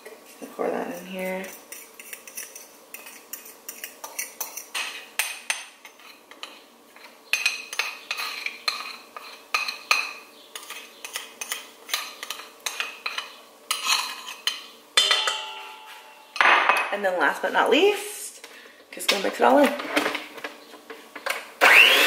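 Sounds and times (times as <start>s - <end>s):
metal utensil scraping metal bowl: 0.4s - 5.0s, 5.8s - 16.4s.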